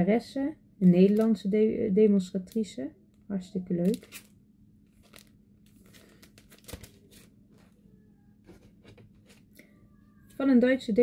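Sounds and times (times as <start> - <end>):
paper rustling and clicking: 5.0 - 7.7.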